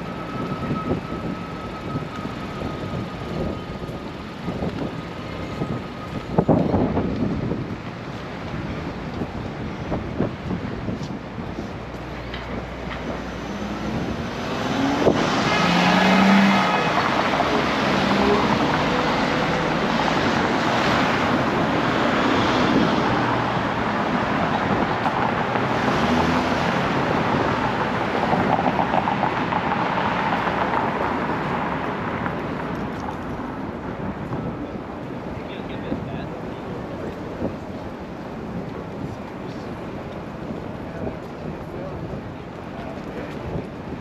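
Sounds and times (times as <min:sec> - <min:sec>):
wind on microphone: 0:00.0 - 0:18.9
cars passing: 0:00.0 - 0:44.0.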